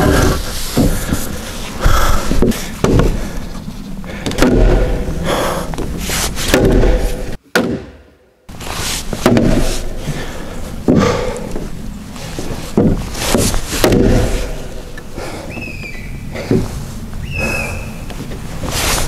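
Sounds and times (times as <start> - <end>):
heavy blows on timber: 0.0 - 3.3, 4.2 - 8.0, 9.1 - 11.8, 12.7 - 14.8
steady low rumble: 0.0 - 7.4, 8.5 - 19.0.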